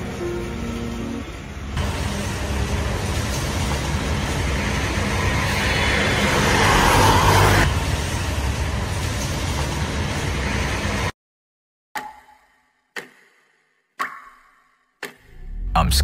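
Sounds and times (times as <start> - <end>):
road traffic rumble: 0.0 - 9.5
passing vehicle: 3.8 - 8.2.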